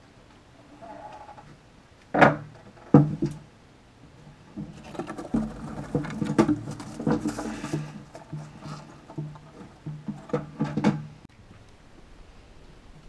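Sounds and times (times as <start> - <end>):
lizard scratching in wood chips: 4.7 - 9.2.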